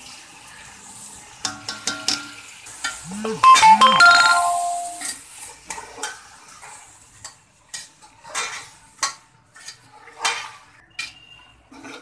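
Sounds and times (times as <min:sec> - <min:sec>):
ringing tone: 0:03.1 - 0:05.1
metal spatula scraping a pot: 0:07.7 - 0:12.0.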